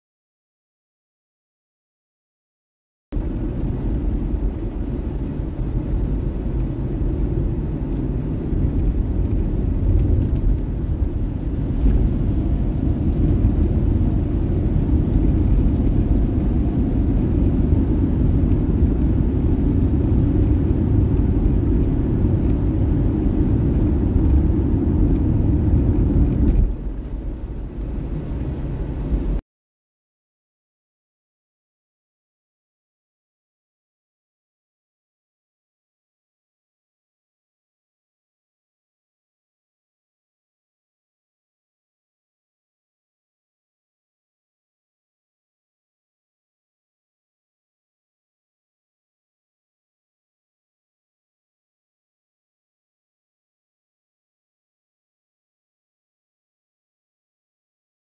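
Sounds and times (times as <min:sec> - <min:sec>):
vehicle driving on wet highway: 0:03.2 - 0:29.4.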